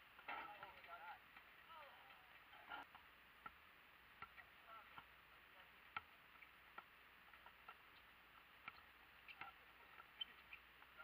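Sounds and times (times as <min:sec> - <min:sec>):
basketball bouncing on asphalt: 0:02.8 - 0:11.0.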